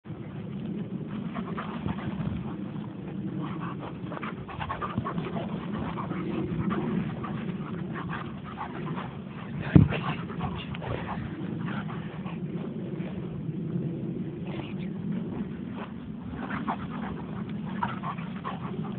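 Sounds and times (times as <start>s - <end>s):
dog panting excitedly: 3.3s - 12.4s, 16.4s - 18.9s.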